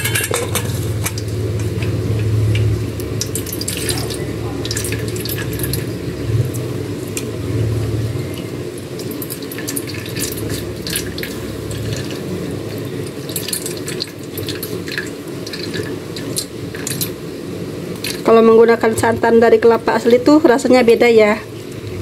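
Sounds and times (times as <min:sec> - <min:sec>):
liquid dripping into a pot: 0:00.0 - 0:07.4, 0:08.3 - 0:17.2, 0:17.9 - 0:18.3
steady low hum: 0:00.0 - 0:22.0.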